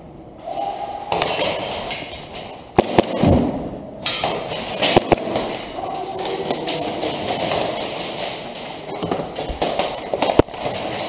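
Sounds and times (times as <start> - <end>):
airsoft pistol shots: 2.8 - 3.7.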